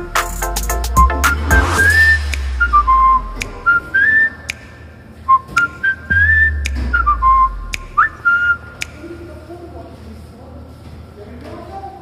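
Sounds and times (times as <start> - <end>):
background music beat: 0.0 - 4.8, 5.5 - 9.0
whistled tune: 0.7 - 8.9.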